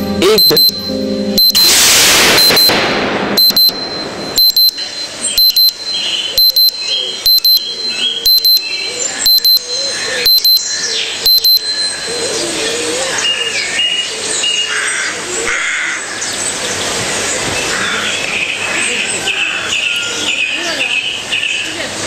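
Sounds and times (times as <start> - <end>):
alarm clock double beeps: 0.2 - 2.8, 3.4 - 12.0
loud rushing noise: 1.5 - 4.4.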